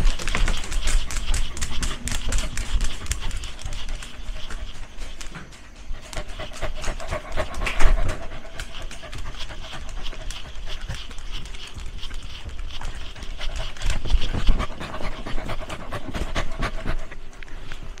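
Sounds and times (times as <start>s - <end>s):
dog panting: 0.0s - 18.0s.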